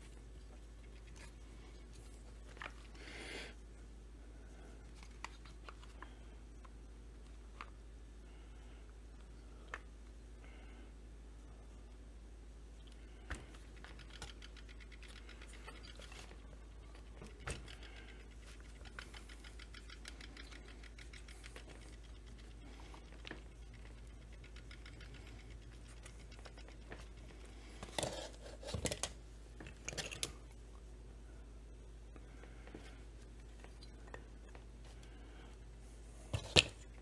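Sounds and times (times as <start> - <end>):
plastic parts knocking and rattling: 13.2 - 30.4, 36.3 - 37.0
plastic parts clicking and scraping: 13.3 - 30.4, 36.3 - 37.0.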